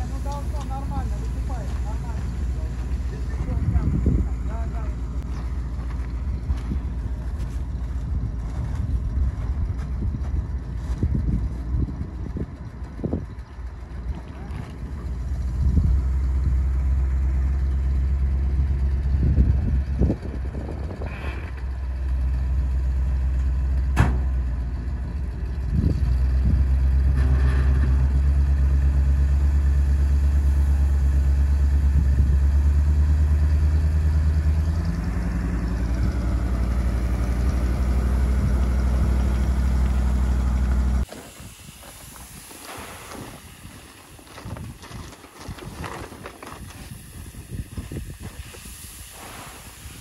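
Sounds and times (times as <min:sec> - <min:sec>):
grain pouring hiss: 0:00.0 - 0:05.2, 0:41.0 - 0:50.0
truck engine revving: 0:13.7 - 0:41.1.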